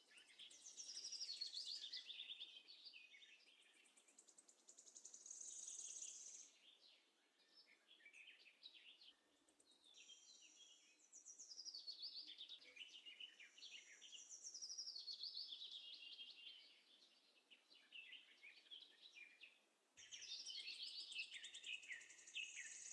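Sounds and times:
birds chirping and trilling: 0:00.0 - 0:22.9.

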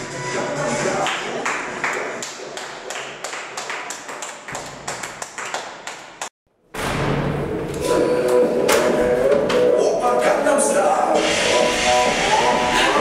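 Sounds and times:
person clapping hands: 0:01.1 - 0:06.3.

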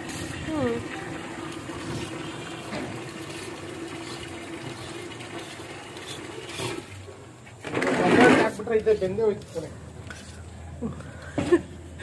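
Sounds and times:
water pouring into plastic bucket: 0:00.0 - 0:07.0.

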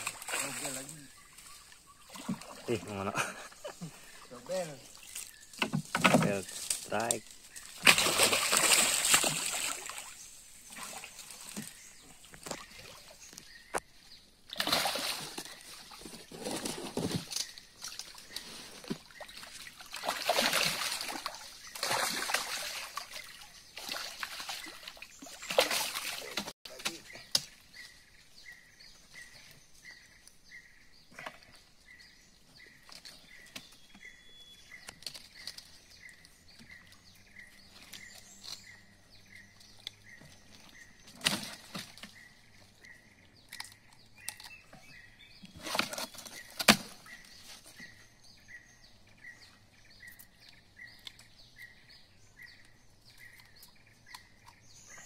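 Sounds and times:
fish thrashing and splashing: 0:07.6 - 0:11.8, 0:14.5 - 0:26.5
faint regular chirp: 0:24.6 - 0:55.0.

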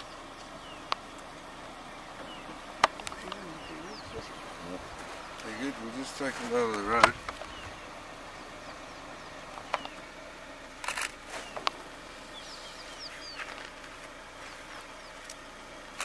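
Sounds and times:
high falling bird chirps: 0:00.0 - 0:05.9, 0:07.3 - 0:10.2, 0:11.3 - 0:13.7
steady background hiss: 0:00.0 - 0:16.0
sharp clicks: 0:02.8 - 0:03.5, 0:10.8 - 0:11.8.

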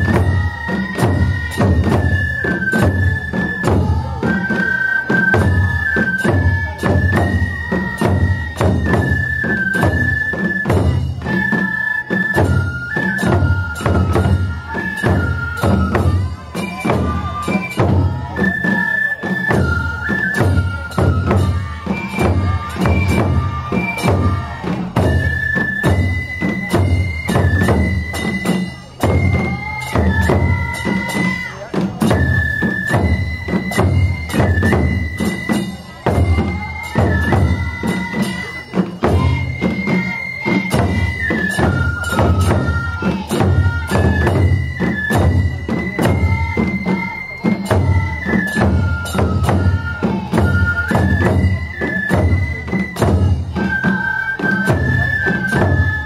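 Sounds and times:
bamboo flutes melody: 0:00.0 - 0:56.0
taiko drums beating: 0:00.0 - 0:56.0.

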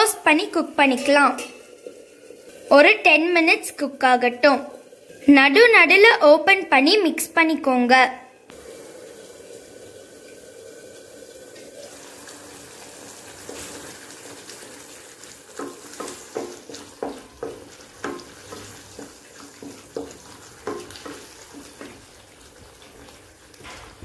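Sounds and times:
paste sizzling and bubbling: 0:00.0 - 0:07.0, 0:08.5 - 0:24.0
wooden spatula scraping pan: 0:15.6 - 0:22.2.

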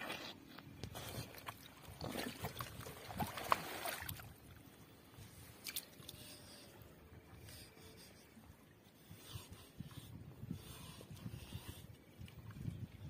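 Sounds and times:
hands splashing in muddy water: 0:01.9 - 0:04.3.

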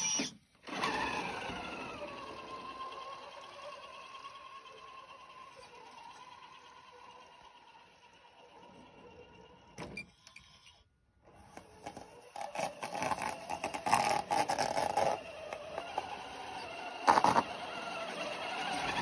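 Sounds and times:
electric motor whine: 0:00.0 - 0:10.8, 0:11.5 - 0:19.0
crunching and scraping snow: 0:11.4 - 0:19.0.

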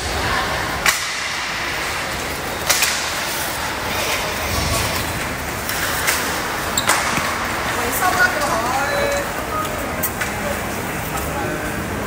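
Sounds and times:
hockey sticks clacking: 0:00.8 - 0:09.3.

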